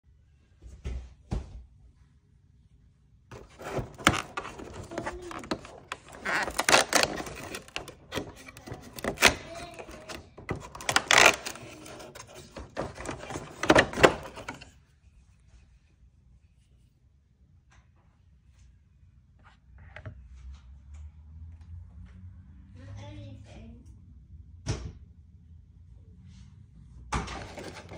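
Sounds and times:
cardboard crackling and rustling: 3.3 - 14.7, 27.3 - 27.9.

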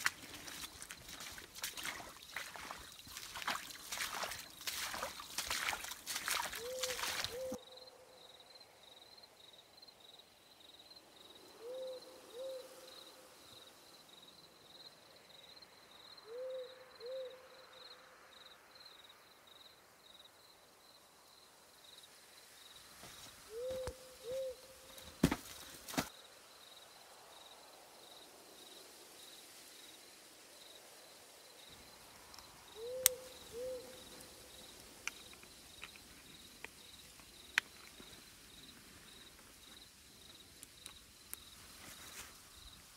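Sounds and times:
insects chirping: 0.0 - 42.9
owl hooting: 6.6 - 7.7, 11.6 - 12.9, 16.2 - 17.5, 23.5 - 24.8, 32.8 - 34.4.

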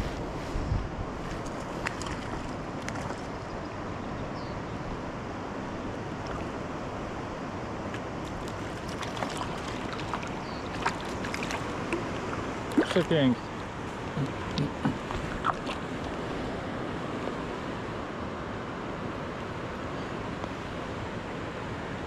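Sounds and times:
stream rushing over stones: 7.8 - 17.6.

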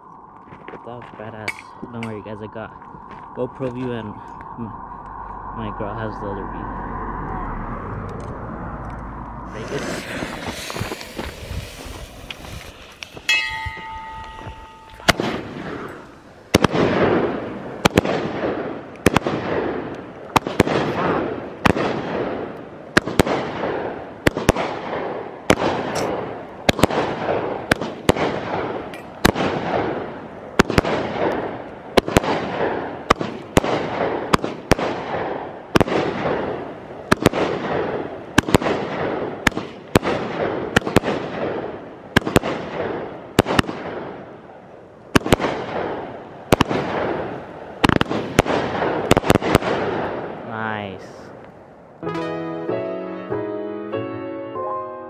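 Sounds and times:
crackling hiss of firework breaks: 9.5 - 13.4
firework cake shots: 9.5 - 13.8.

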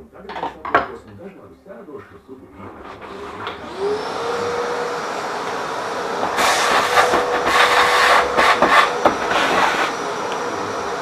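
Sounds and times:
vacuum cleaner motor whine: 2.5 - 11.0
vacuum nozzle suction surges: 2.6 - 11.0.

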